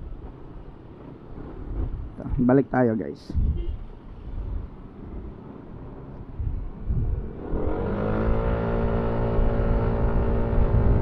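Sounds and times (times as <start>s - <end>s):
road and wind rumble: 0.0s - 11.0s
scooter engine accelerating: 7.1s - 11.0s.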